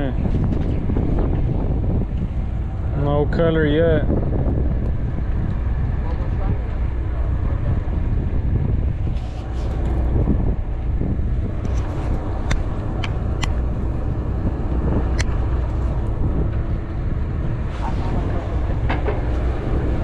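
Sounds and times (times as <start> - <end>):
boat engine rumble: 0.0 - 20.0
wind on microphone: 0.0 - 20.0
sharp clicks: 11.6 - 13.7.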